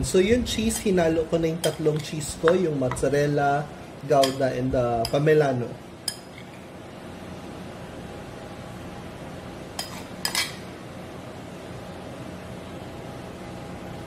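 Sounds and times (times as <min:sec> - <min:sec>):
faint steady hum: 0:00.0 - 0:14.0
metal spoon clinking dishes: 0:01.6 - 0:03.1, 0:04.2 - 0:05.2, 0:06.0 - 0:06.6, 0:09.8 - 0:10.7.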